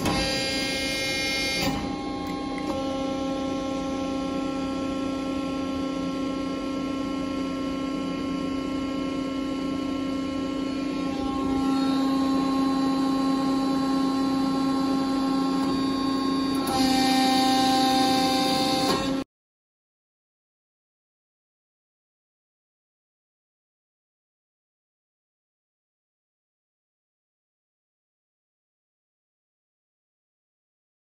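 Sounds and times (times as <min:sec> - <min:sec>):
hydraulic pump motor humming: 0:00.0 - 0:19.2.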